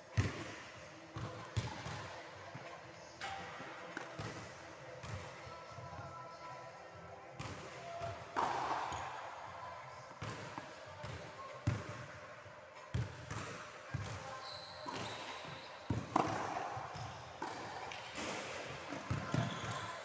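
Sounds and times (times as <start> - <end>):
tennis balls struck by rackets: 3.2 - 4.4, 7.4 - 9.1, 15.9 - 19.8.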